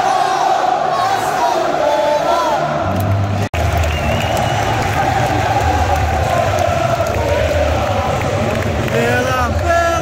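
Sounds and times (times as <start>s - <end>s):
stadium crowd singing: 0.0s - 3.5s, 4.2s - 10.0s
fans clapping: 2.9s - 10.0s.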